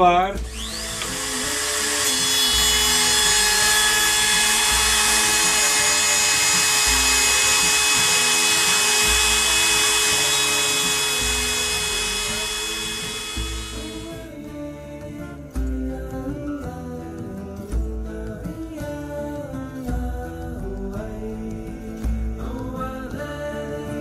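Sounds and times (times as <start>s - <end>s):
router whining cutting plywood: 0.4s - 14.2s.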